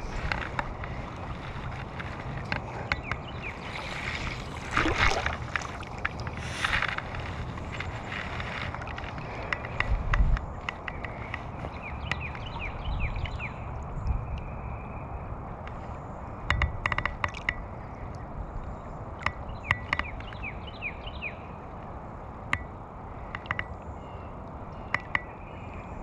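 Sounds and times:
river current rumble: 0:00.0 - 0:19.2
wind on microphone: 0:00.0 - 0:20.3.

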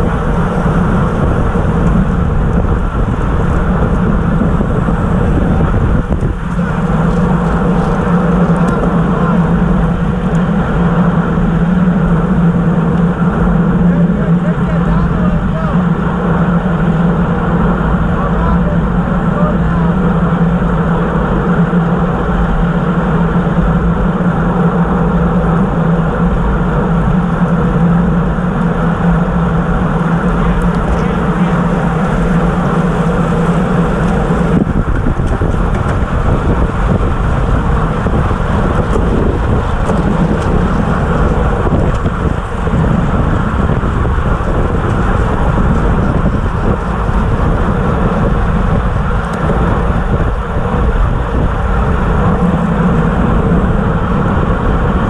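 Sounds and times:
steady hum: 0:00.0 - 0:55.0
tyre and road rumble: 0:00.0 - 0:55.0
wind rushing over microphone: 0:00.0 - 0:55.0.

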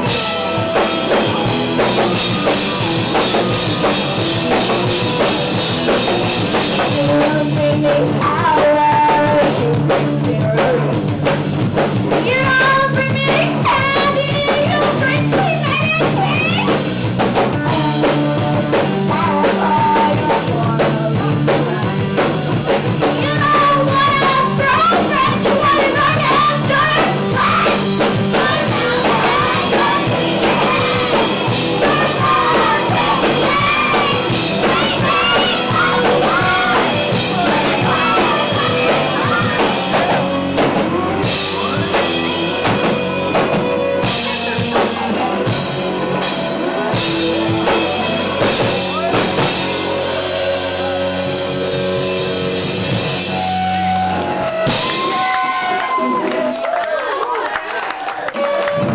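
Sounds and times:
live pop-rock band playing: 0:00.0 - 0:58.9
woman singing lead vocals: 0:06.8 - 0:10.9, 0:17.6 - 0:21.8, 0:23.2 - 0:40.2.

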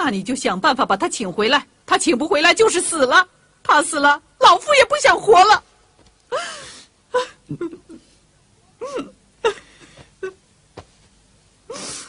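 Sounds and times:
woman sobbing: 0:06.3 - 0:08.2, 0:08.8 - 0:10.4.

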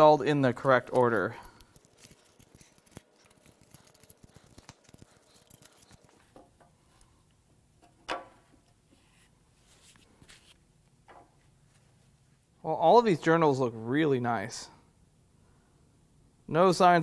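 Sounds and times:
faint metallic clicks and scrapes: 0:00.6 - 0:08.0.

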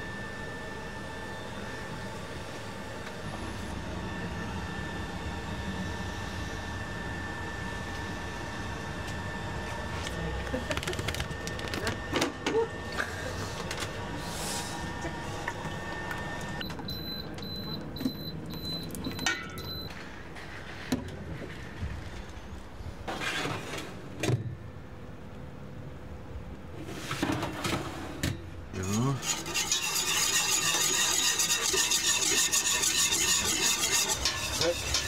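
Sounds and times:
whisk scraping metal pot: 0:28.8 - 0:35.0.

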